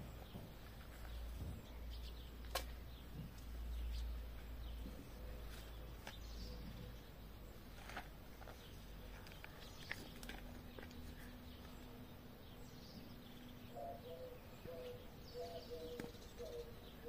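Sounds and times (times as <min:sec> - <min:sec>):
faint bird chirps: 0:08.5 - 0:17.0.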